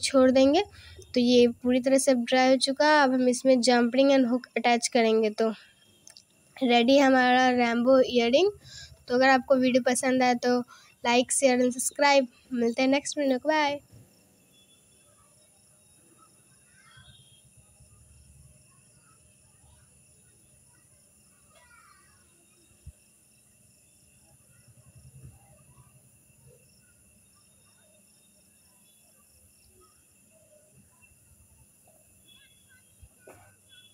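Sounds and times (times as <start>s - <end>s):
faint background hiss: 0.0s - 33.9s
faint high chirp: 13.6s - 33.9s.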